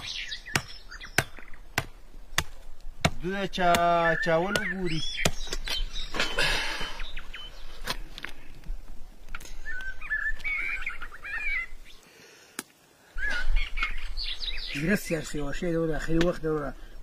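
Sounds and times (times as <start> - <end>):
axe chopping meat and bone: 0.0 - 5.7
birds chirping: 0.0 - 17.0.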